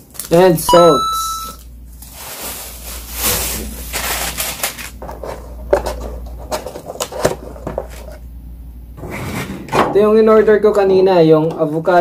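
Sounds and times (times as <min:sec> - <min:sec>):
food packaging rustling: 0:01.9 - 0:08.2.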